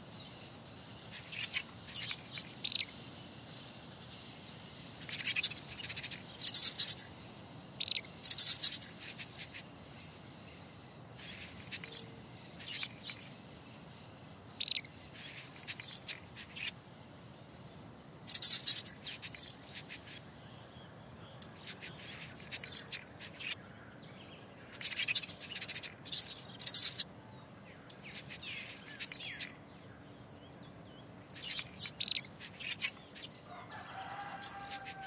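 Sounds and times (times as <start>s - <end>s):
faint background hiss: 0.0s - 35.0s
mouse squeaks: 1.1s - 2.9s, 5.0s - 7.1s, 7.8s - 9.6s, 11.2s - 13.3s, 14.6s - 16.8s, 18.2s - 20.2s, 21.4s - 23.6s, 24.7s - 27.1s, 27.9s - 29.6s, 31.3s - 33.3s, 34.1s - 35.0s.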